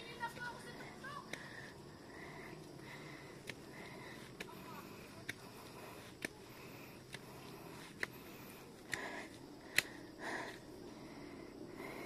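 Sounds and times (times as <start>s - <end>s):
heavy breaths: 0.7s - 12.0s
footsteps on concrete steps: 2.6s - 10.7s.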